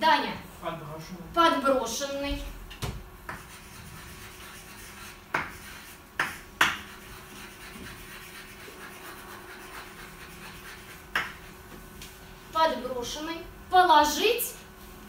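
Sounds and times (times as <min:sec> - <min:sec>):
sharp chalk strokes: 0:03.3 - 0:11.6
chalk scratching on chalkboard: 0:03.3 - 0:11.7.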